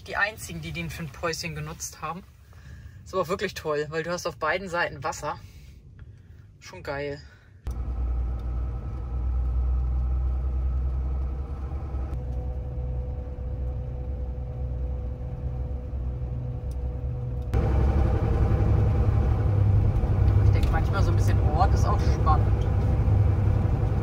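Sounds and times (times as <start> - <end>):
diesel truck engine droning: 7.7 - 24.0.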